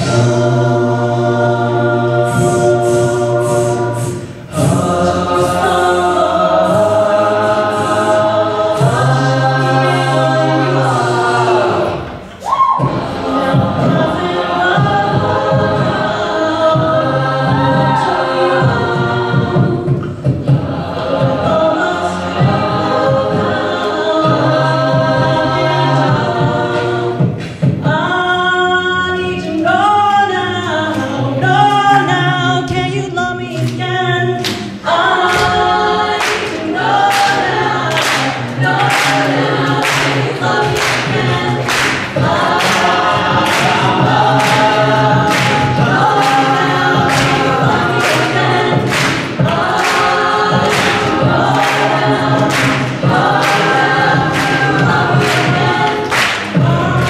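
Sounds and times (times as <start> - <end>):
a cappella group singing: 0.0 - 57.0
percussive hits: 38.0 - 57.0.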